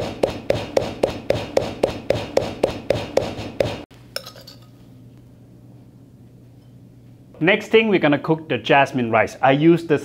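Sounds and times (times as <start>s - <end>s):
pestle pounding in a mortar: 0.0s - 3.9s.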